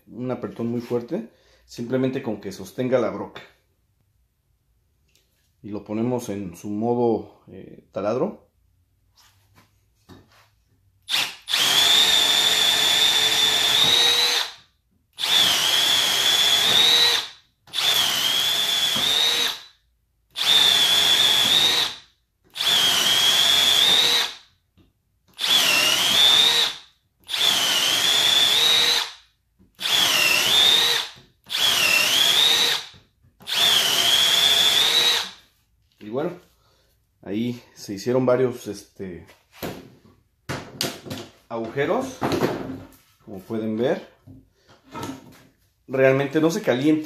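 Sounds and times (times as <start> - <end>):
drill whining into wood: 11.1 - 14.6, 15.2 - 19.7, 20.3 - 24.4, 25.3 - 29.2, 29.8 - 35.4.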